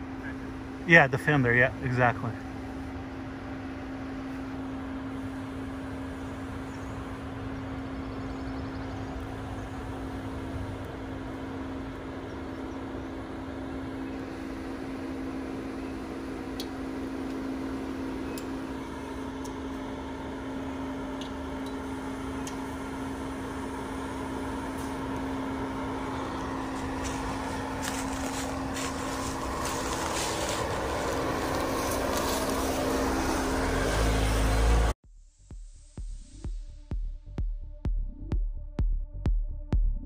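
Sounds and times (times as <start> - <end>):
car engine running at low speed: 0.0 - 40.0
tyres crackling on rock and gravel: 26.0 - 33.4.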